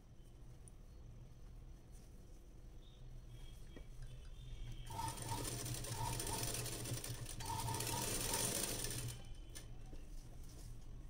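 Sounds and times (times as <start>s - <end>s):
sewing machine stitching: 4.9s - 9.7s.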